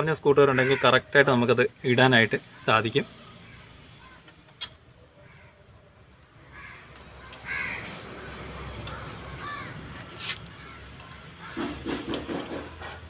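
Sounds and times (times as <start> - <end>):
crows cawing: 0.5 - 1.1, 3.4 - 4.4, 5.2 - 5.6, 6.4 - 12.6.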